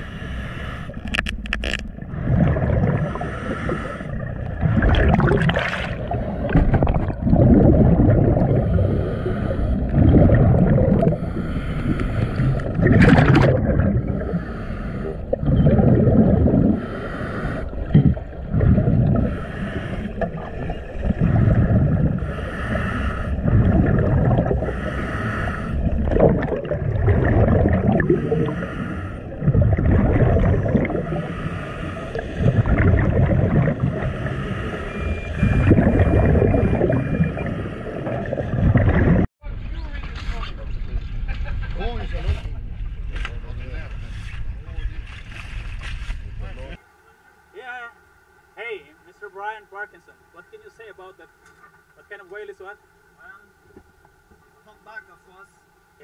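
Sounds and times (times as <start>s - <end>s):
underwater bubbling: 0.0s - 39.3s.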